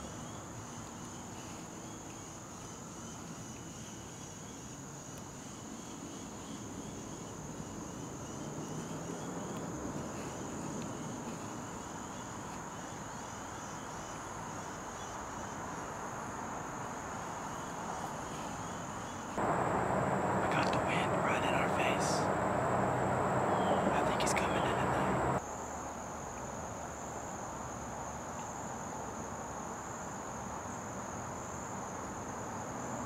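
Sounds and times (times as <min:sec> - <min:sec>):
insect chorus droning: 0:00.0 - 0:33.0
loud rush of noise: 0:19.4 - 0:25.4.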